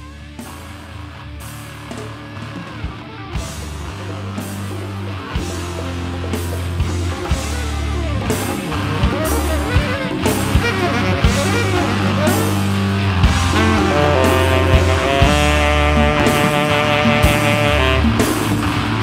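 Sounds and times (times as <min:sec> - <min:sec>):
electric guitar: 0:00.0 - 0:19.0
sustained bass line: 0:00.0 - 0:19.0
drum kit hits: 0:02.7 - 0:19.0.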